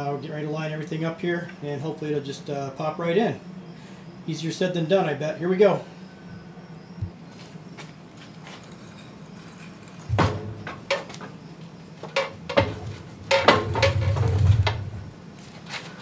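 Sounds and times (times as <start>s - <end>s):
heavy cast iron parts clanking: 10.1s - 11.4s, 12.0s - 15.0s
metal rumbling and scraping: 12.0s - 15.2s.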